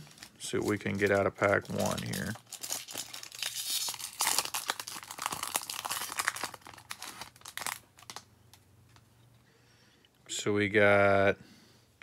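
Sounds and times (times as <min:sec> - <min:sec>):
foil wrapper tearing and crinkling: 0:00.0 - 0:08.3.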